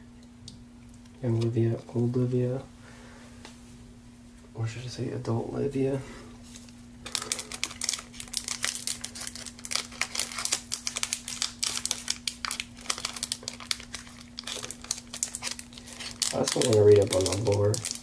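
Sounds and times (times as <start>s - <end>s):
faint steady hum: 0.0s - 18.0s
foil wrapper crinkling: 7.0s - 18.0s.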